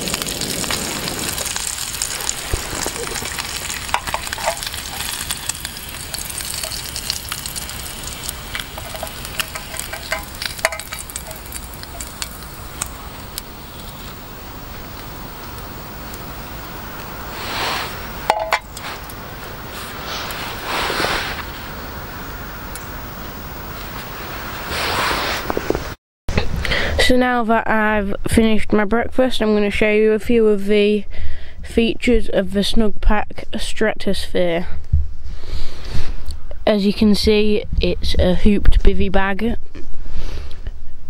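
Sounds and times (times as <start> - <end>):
bacon sizzling in a tin: 0.0 - 20.8
clicks and scrapes of utensil: 3.9 - 5.1, 8.5 - 11.4.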